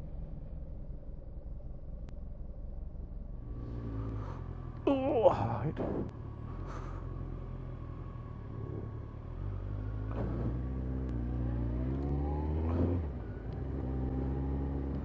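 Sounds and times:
motorcycle engine revving: 3.4s - 15.0s.

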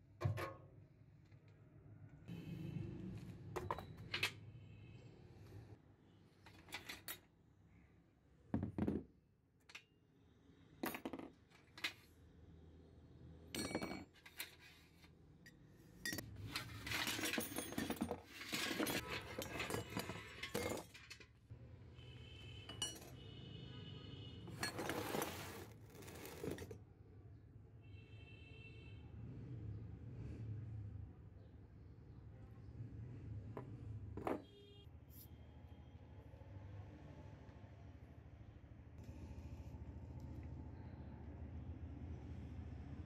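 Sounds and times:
metal tools clattering in a pail: 13.6s - 14.7s, 16.0s - 21.4s, 22.7s - 23.2s, 24.5s - 26.8s.

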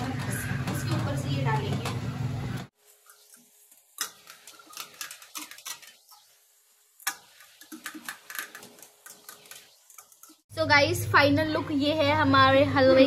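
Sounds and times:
metal utensil scraping steel pot: 7.1s - 10.4s.

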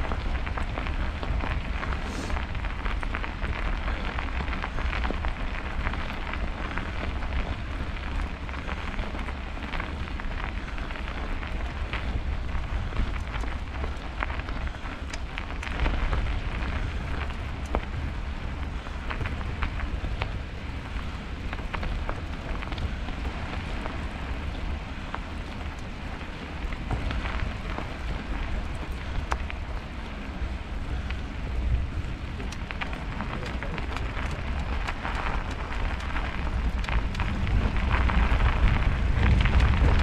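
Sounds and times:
wind rumble on microphone: 0.0s - 40.0s
tyres hissing on snow: 1.8s - 2.8s.

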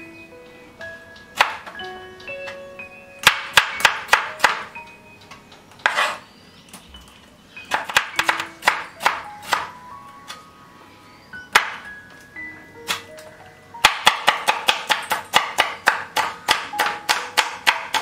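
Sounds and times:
soft bell-like background music: 0.0s - 5.7s, 6.4s - 13.9s
knife chopping on wooden board: 7.7s - 9.7s, 13.8s - 18.0s.

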